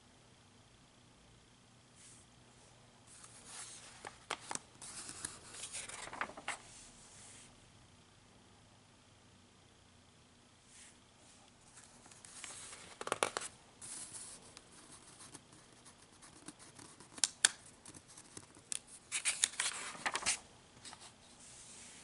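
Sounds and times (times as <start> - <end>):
magazine pages rustling: 3.2 - 6.7, 11.7 - 14.4, 18.7 - 21.2.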